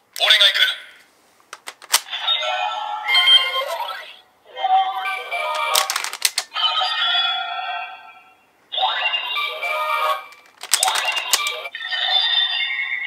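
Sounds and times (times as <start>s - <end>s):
plastic clicks: 1.5s - 2.1s, 5.5s - 6.5s, 10.3s - 11.6s
toy electronic sound effects and music: 5.0s - 13.0s.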